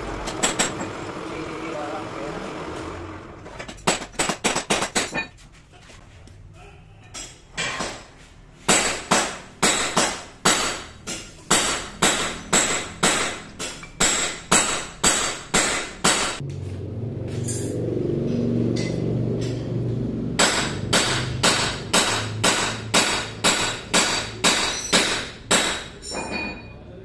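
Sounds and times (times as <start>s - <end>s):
hammer striking metal: 7.2s - 16.4s, 18.6s - 26.7s.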